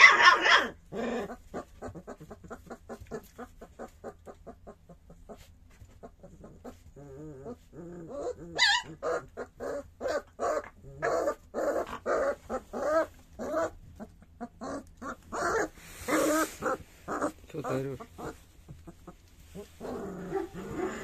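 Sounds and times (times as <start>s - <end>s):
puppy yelping: 0.0s - 21.0s
puppy whimpering and crying: 6.0s - 21.0s.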